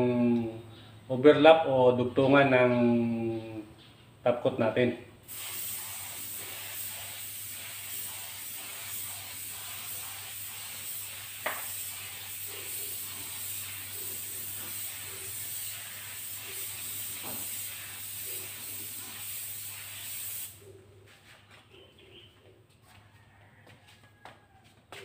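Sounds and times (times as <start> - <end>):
air spray gun hissing: 5.2 - 20.6.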